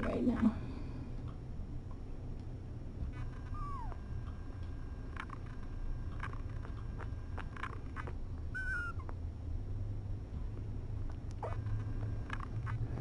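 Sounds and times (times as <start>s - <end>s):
kitten mewing: 3.4s - 4.0s, 6.2s - 9.2s.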